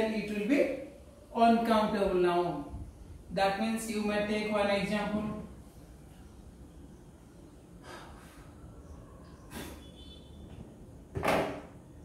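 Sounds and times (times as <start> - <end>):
sharp intake of breath: 7.8 - 8.6, 9.5 - 10.0
man breathing: 7.8 - 8.7.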